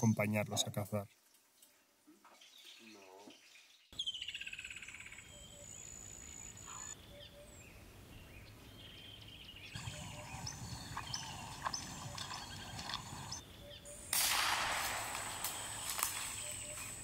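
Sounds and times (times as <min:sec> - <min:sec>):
birds calling: 0:02.4 - 0:14.1, 0:15.0 - 0:17.0
repeated high bird calls with clicks: 0:15.2 - 0:17.0.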